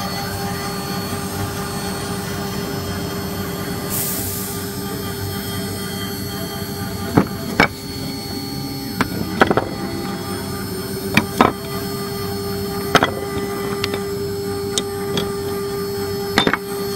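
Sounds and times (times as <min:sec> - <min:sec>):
engraving machine humming: 0:05.3 - 0:16.9.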